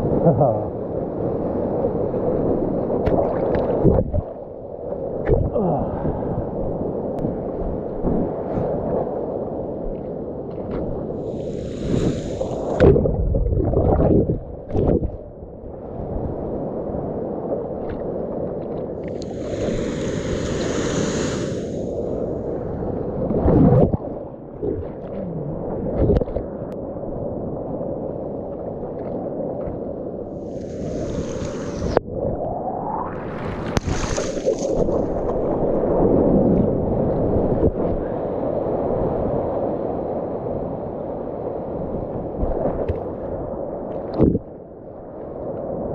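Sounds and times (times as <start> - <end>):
water sloshing and splashing: 3.0 - 4.4, 33.2 - 35.6
hissing rush of foamy water: 11.2 - 12.8, 19.0 - 22.4, 30.4 - 32.0, 33.6 - 35.1.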